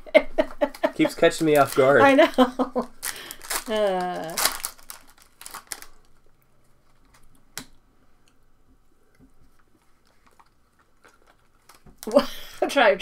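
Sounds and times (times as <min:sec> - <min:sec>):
foil wrapper crinkling: 0:01.0 - 0:07.4, 0:10.0 - 0:12.3
foil wrapper snap: 0:03.0 - 0:06.2.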